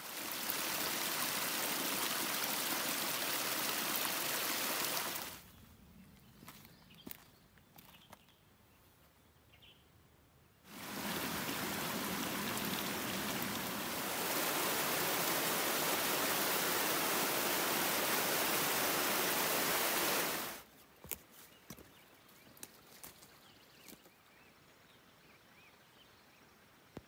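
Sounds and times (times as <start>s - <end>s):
creek rushing over rocks: 0.0s - 5.4s, 10.7s - 20.6s.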